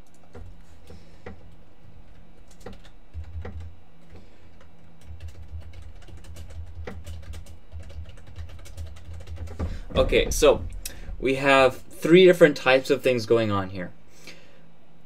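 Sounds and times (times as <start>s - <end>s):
keyboard typing: 0.0s - 10.8s
low steady hum: 0.0s - 15.0s.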